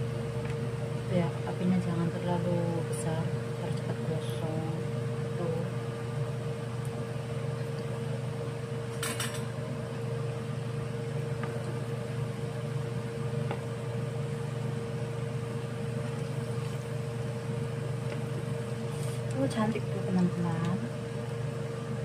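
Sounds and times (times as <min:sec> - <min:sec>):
steady hum: 0:00.0 - 0:22.0
food deep-frying in bubbling oil: 0:04.4 - 0:22.0.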